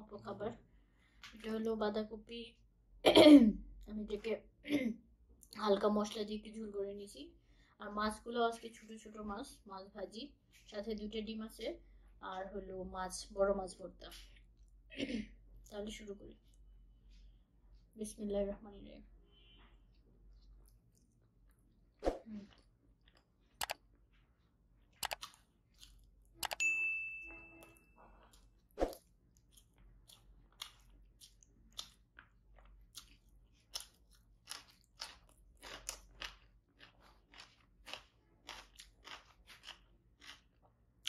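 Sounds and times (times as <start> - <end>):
person chewing food: 19.4 - 26.6, 27.6 - 41.0
sharp clicks and knock: 23.6 - 23.8, 25.0 - 25.2, 26.4 - 26.6
short ringing ding: 26.6 - 28.0.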